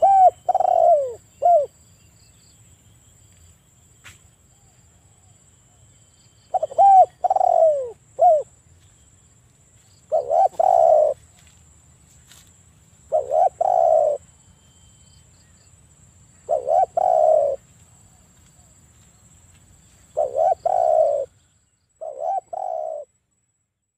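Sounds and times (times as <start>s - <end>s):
dove cooing: 0.0s - 1.8s, 6.5s - 8.5s, 10.1s - 11.2s, 13.1s - 14.2s, 16.4s - 17.6s, 20.1s - 21.4s, 22.0s - 23.1s.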